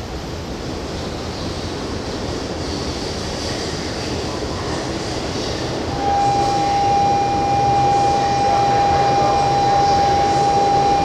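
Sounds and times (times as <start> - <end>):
train rumbling past: 0.0 - 11.0
high electronic tone: 6.0 - 11.0.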